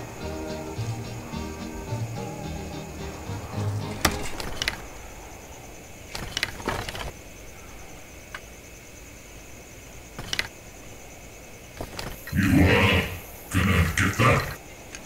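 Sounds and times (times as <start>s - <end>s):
faint steady hiss: 0.0s - 15.0s
small clicks and rattles: 4.0s - 4.9s, 6.1s - 7.2s, 10.2s - 10.6s, 11.8s - 12.3s.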